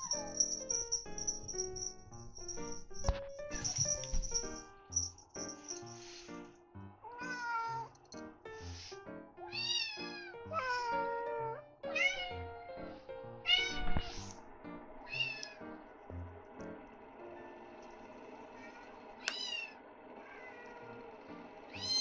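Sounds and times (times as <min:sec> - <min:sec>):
background music: 0:00.0 - 0:18.6
cat meowing: 0:07.0 - 0:08.0, 0:09.4 - 0:12.7, 0:13.4 - 0:14.2, 0:15.1 - 0:15.6, 0:18.6 - 0:20.8, 0:21.7 - 0:22.0.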